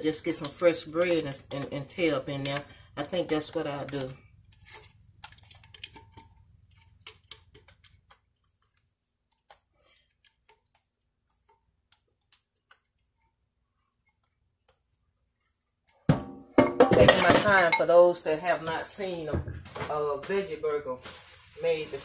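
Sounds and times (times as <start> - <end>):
plastic bag crinkling: 20.9 - 22.0.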